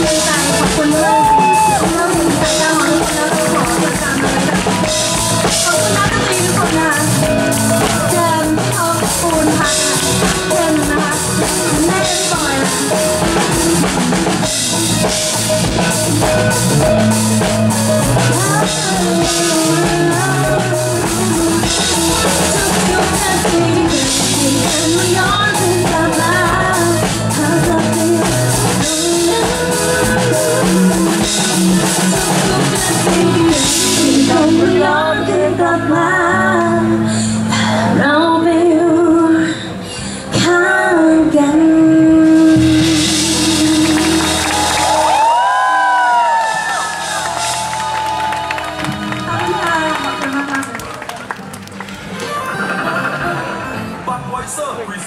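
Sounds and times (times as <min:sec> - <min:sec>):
woman singing into a microphone: 0:00.0 - 0:15.1, 0:18.2 - 0:46.8
drum kit: 0:00.0 - 0:36.5, 0:42.1 - 0:51.9
electric guitar: 0:00.0 - 0:54.1
bass guitar: 0:00.0 - 0:54.2.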